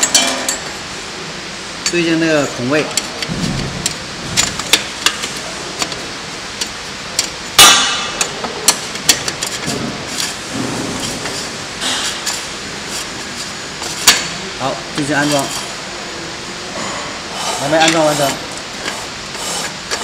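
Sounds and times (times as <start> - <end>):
loud metallic clang: 0.0 - 0.7, 7.6 - 8.2.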